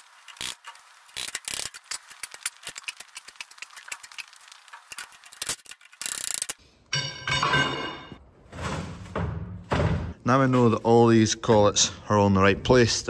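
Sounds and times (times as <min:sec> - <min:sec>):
metallic clicks and rattles: 0:00.1 - 0:06.6
ringing metal sound: 0:06.9 - 0:08.2.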